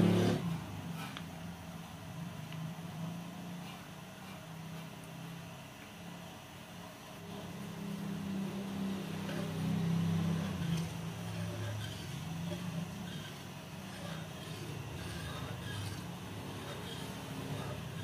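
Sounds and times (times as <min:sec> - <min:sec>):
steady low hum: 0:00.0 - 0:18.0
metal spoon scraping paste in pan: 0:07.3 - 0:18.0.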